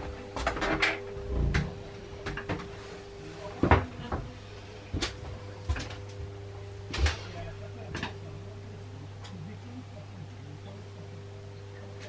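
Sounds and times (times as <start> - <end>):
steady tonal hum: 0.0 - 12.0
cupboard doors knocking and clunking: 3.6 - 4.3.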